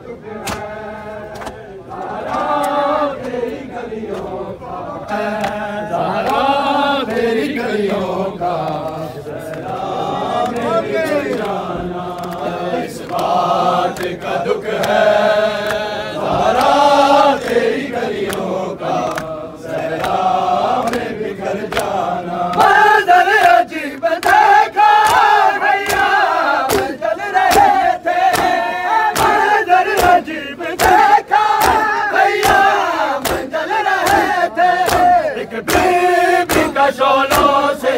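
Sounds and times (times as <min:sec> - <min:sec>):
crowd of men chanting: 0:00.0 - 0:37.9
hands slapping bare chests: 0:06.2 - 0:06.5, 0:18.2 - 0:20.2, 0:21.7 - 0:22.8, 0:24.2 - 0:37.7.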